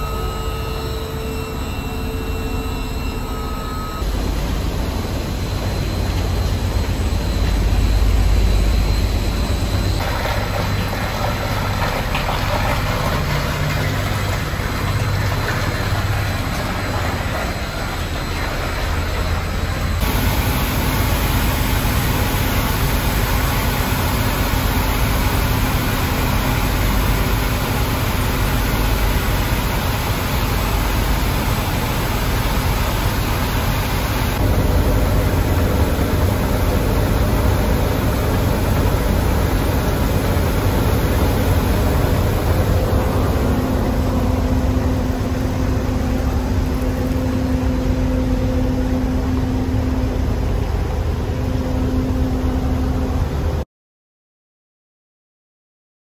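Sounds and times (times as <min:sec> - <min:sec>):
machinery running: 0:00.0 - 0:53.6
steady hum: 0:00.0 - 0:53.6
water spilling over weirs: 0:10.0 - 0:32.8.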